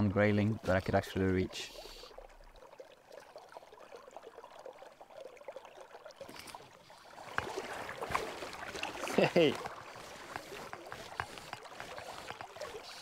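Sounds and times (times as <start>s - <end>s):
river water flowing: 0.0s - 13.0s
light knocks or splashes: 6.2s - 13.0s.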